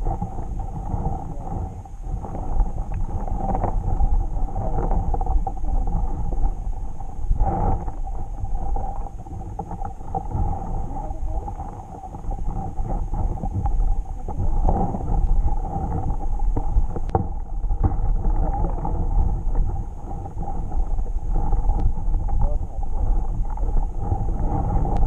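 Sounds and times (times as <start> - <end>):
muffled underwater rumble: 0.0 - 25.0
faint clicks: 21.7 - 22.5.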